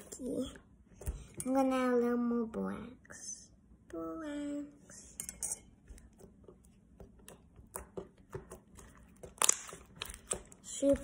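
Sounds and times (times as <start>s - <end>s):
slime squelching: 5.9s - 11.0s
slime popping: 8.5s - 10.4s.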